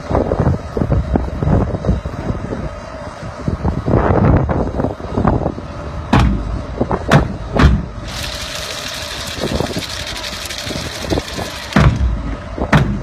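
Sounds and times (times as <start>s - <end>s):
wind buffeting microphone: 0.0s - 13.0s
sharp knocks: 11.8s - 12.1s, 12.7s - 13.0s.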